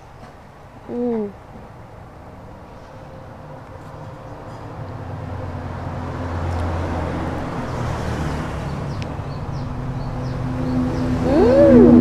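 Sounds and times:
low motor rumble: 0:10.0 - 0:12.0.

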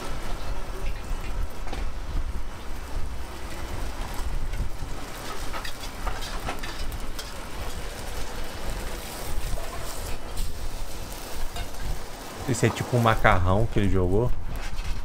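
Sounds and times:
gas burner rumbling: 0:00.0 - 0:15.0
metal spatula scraping wok: 0:05.3 - 0:07.9.

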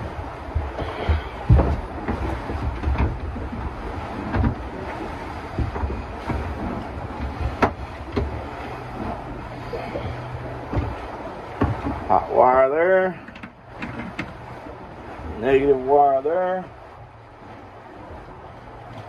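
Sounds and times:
wind rumble on microphone: 0:00.0 - 0:19.0
handling knocks and clicks: 0:13.2 - 0:14.4.

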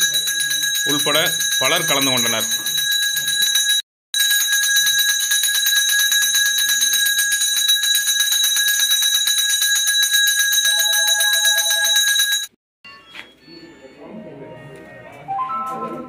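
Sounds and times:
hand bell ringing rapidly: 0:00.0 - 0:12.5.

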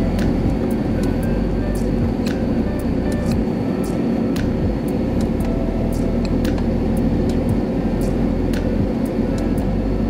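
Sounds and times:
low rumble of aircraft engines: 0:00.0 - 0:10.0.

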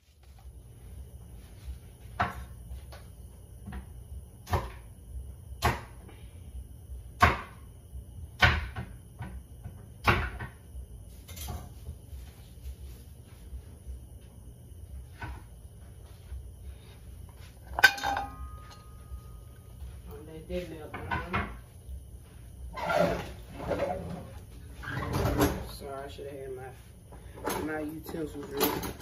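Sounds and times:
low steady hum: 0:00.0 - 0:29.0
kitchen knocks and bangs: 0:07.2 - 0:07.6, 0:08.4 - 0:09.4, 0:10.0 - 0:10.6, 0:17.7 - 0:19.0.

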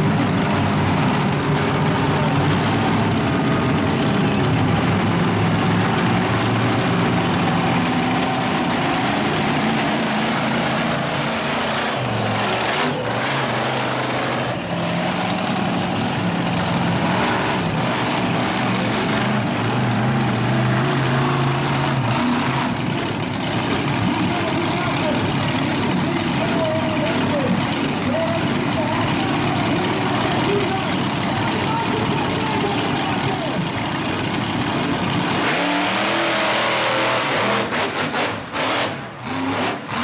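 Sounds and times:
large truck engine revving: 0:00.0 - 0:40.0.

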